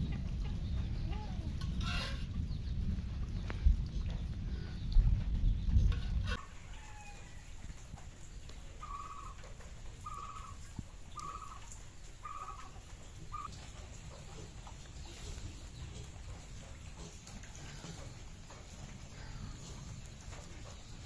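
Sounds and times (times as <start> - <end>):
bird calling: 8.8 - 13.6.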